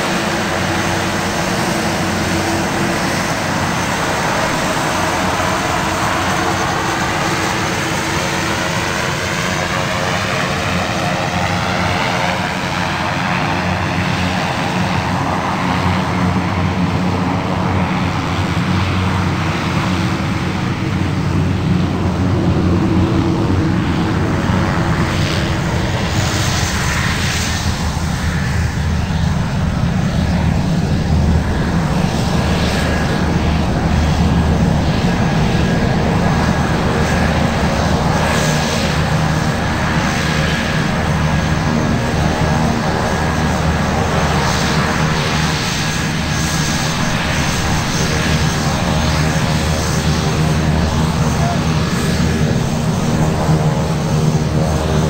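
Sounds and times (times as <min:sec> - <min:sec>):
propeller aircraft engine drone: 0:00.0 - 0:55.0.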